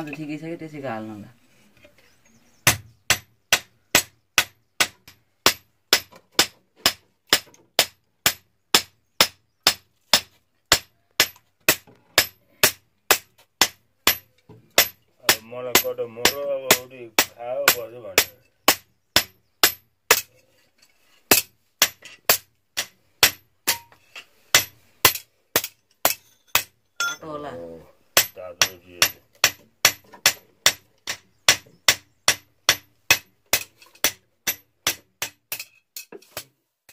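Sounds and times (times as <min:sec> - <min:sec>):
hammer beating iron on anvil: 0:02.7 - 0:14.2, 0:14.8 - 0:20.3, 0:21.3 - 0:24.0, 0:28.2 - 0:35.7
person speaking: 0:27.1 - 0:27.9.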